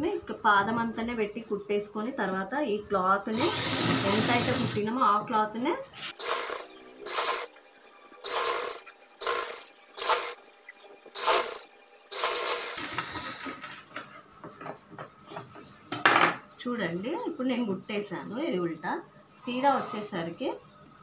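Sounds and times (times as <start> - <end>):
sewing machine running in bursts: 3.3 - 4.8, 6.2 - 7.6, 8.2 - 10.4, 11.1 - 13.7.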